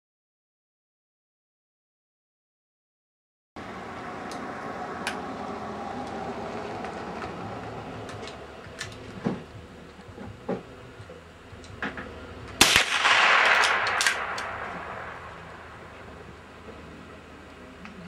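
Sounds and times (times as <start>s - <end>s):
rifle shots cracking: 12.6s - 16.0s
rushing noise: 12.6s - 17.2s.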